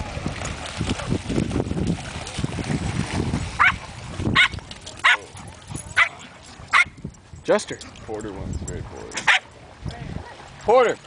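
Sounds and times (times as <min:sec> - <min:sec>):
dog yipping: 0:06.0 - 0:07.0.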